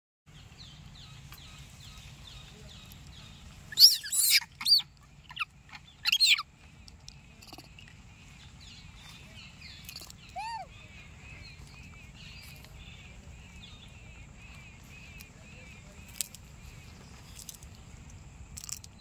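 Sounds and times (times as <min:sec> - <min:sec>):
faint chirping: 0:00.3 - 0:19.0
shrill animal calls: 0:03.7 - 0:06.5, 0:10.3 - 0:11.0.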